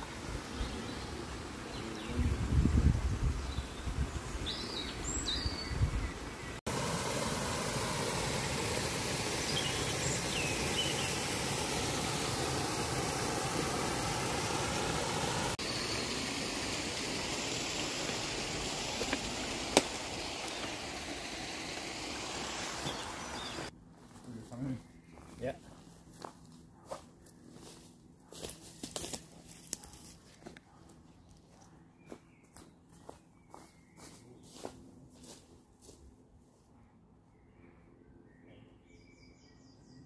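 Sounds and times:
birds chirping: 0:00.0 - 0:27.7, 0:30.3 - 0:34.9
stream water rushing: 0:06.2 - 0:23.7.

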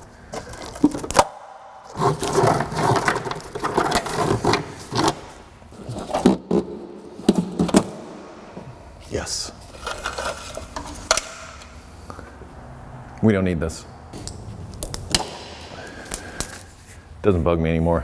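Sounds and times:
scraping and rubbing: 0:01.8 - 0:07.9, 0:09.5 - 0:11.1.

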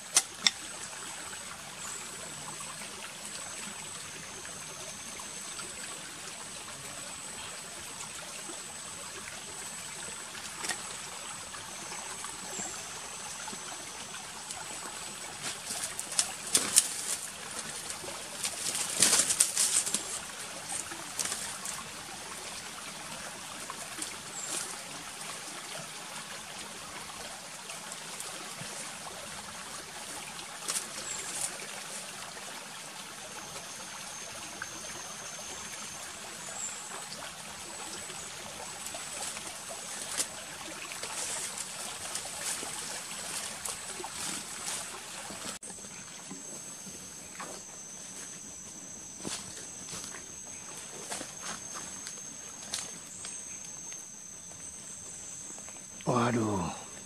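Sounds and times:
creek trickling: 0:00.0 - 0:57.0
twigs and brush rustling: 0:15.3 - 0:21.8, 0:30.6 - 0:32.0, 0:39.1 - 0:45.6.

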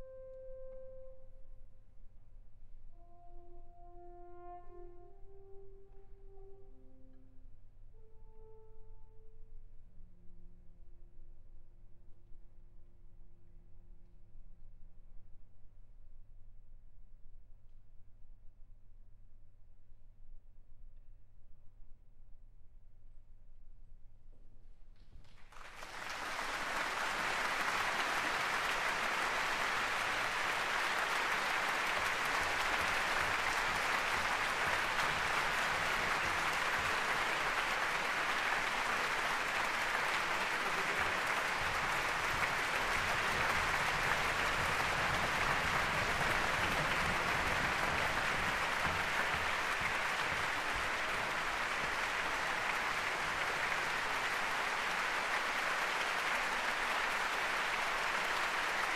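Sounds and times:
audience applauding: 0:25.3 - 0:58.9.

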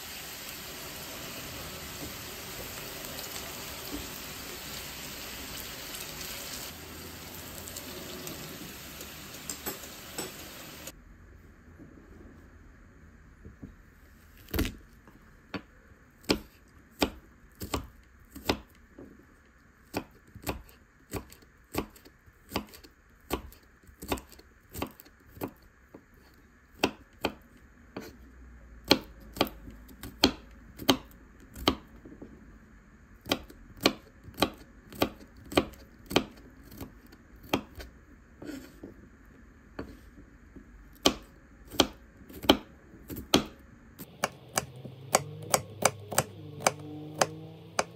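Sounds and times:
knife chopping on cutting board: 0:16.2 - 0:18.7, 0:19.9 - 0:25.6, 0:33.2 - 0:38.9, 0:39.8 - 0:40.0, 0:41.0 - 0:47.9.

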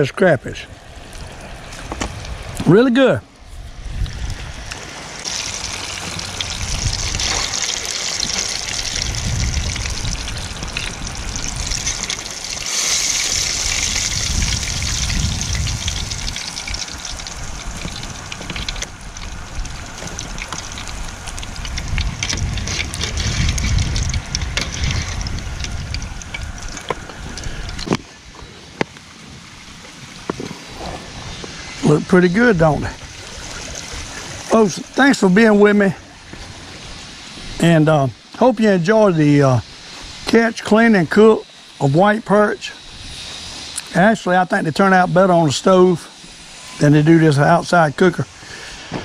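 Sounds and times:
food deep-frying in hot grease: 0:03.7 - 0:28.2, 0:31.4 - 0:49.0
sharp crackles: 0:04.0 - 0:35.8
low rumble: 0:08.2 - 0:27.9.

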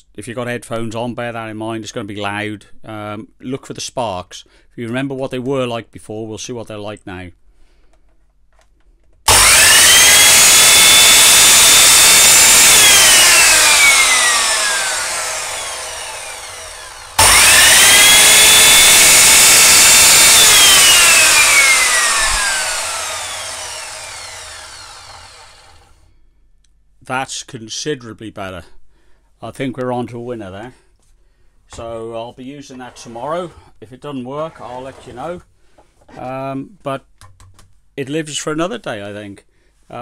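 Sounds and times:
mitre saw motor whining: 0:09.3 - 0:26.0.

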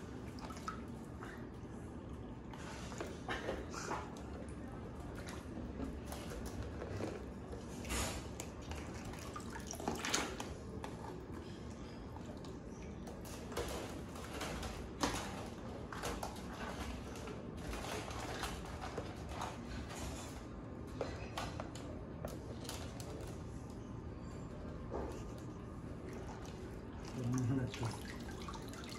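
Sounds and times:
water dripping and splashing: 0:00.0 - 0:01.4, 0:04.0 - 0:11.0, 0:26.0 - 0:28.9.

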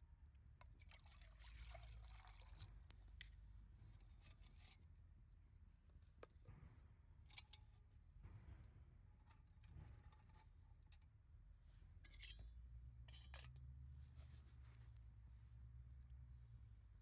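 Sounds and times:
water trickling into pot: 0:00.6 - 0:03.2.

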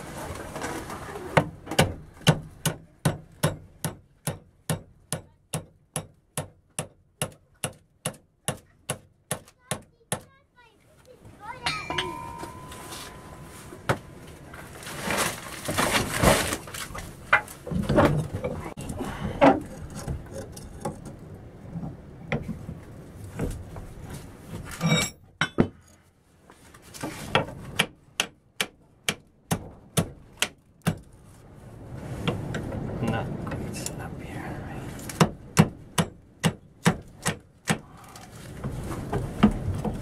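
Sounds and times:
metal clanking and scraping: 0:11.5 - 0:21.2, 0:24.6 - 0:25.9.

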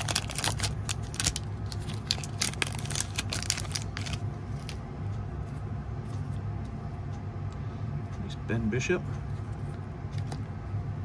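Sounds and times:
foil wrapper crinkling: 0:00.0 - 0:04.8
steady low hum: 0:00.0 - 0:11.0.

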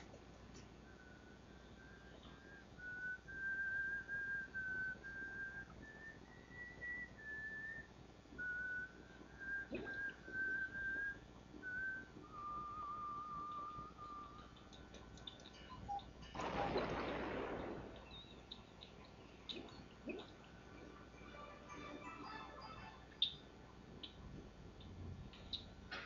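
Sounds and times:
person whistling a slow tune: 0:00.8 - 0:14.9.

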